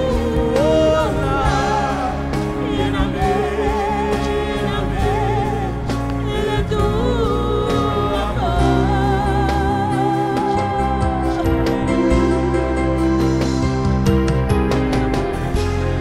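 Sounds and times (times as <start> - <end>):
woman singing: 0.0 - 12.8
instrumental accompaniment: 0.0 - 16.0.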